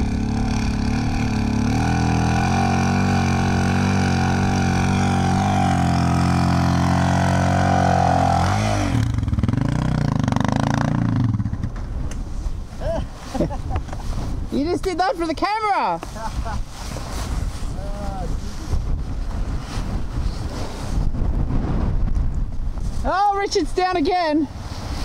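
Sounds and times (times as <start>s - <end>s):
motorcycle engine revving: 0.0s - 11.9s.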